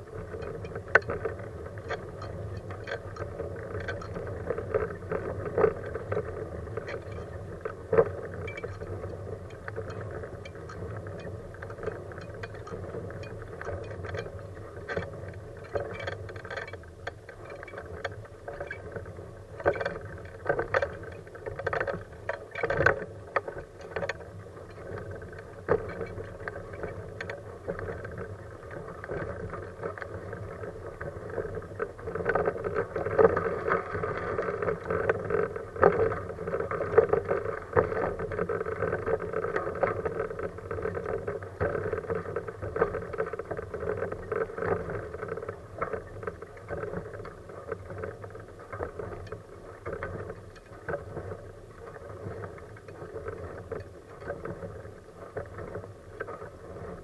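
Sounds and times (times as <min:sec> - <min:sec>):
wheelchair tyres rumbling on asphalt: 0:00.0 - 0:57.0
wheelchair frame rattling: 0:00.1 - 0:07.4, 0:08.0 - 0:19.0.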